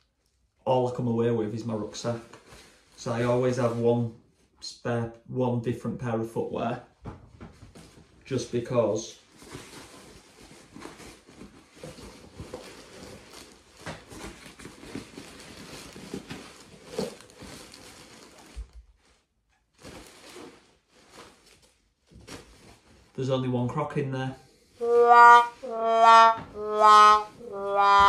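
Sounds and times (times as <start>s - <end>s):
rustling of rucksack: 9.2s - 23.2s.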